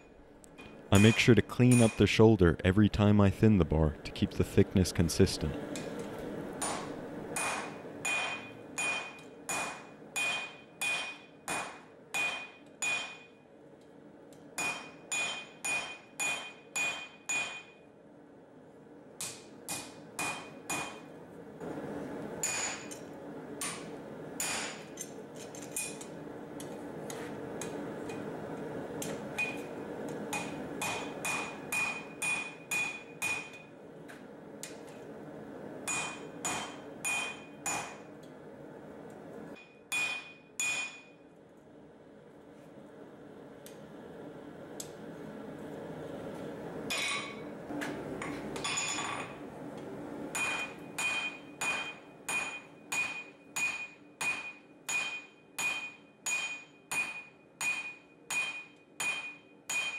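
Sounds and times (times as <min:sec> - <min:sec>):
hammer striking hot steel on anvil: 0:01.0 - 0:02.1, 0:06.6 - 0:13.4, 0:14.6 - 0:17.9, 0:19.2 - 0:21.1, 0:22.4 - 0:26.8, 0:29.0 - 0:33.7, 0:35.8 - 0:38.1, 0:39.6 - 0:41.2, 0:50.3 - 0:59.9.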